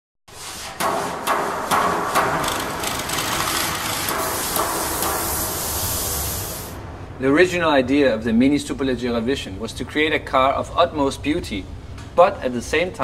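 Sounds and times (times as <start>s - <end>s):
steady hiss: 0.3s - 8.7s
sharp knocks: 0.8s - 5.8s.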